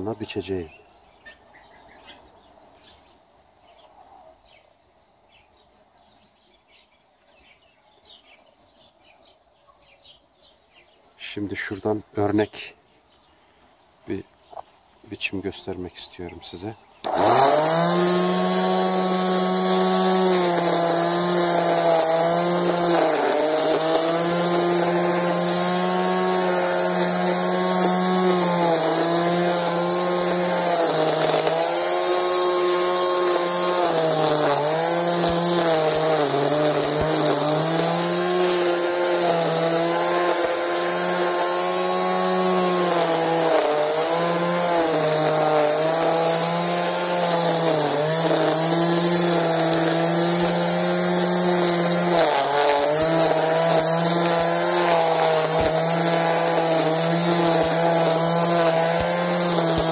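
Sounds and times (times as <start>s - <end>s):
electric string trimmer motor whine: 17.0s - 59.9s.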